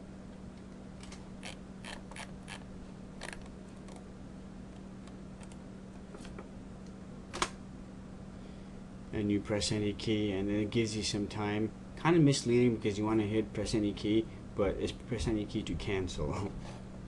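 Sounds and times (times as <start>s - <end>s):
steady low hum: 0.0s - 17.0s
mouse and keyboard clicks: 3.2s - 4.0s.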